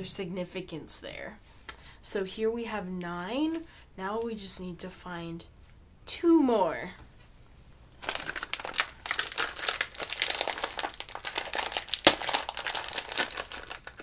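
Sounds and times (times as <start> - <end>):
plastic packaging crinkling: 8.0 - 14.0.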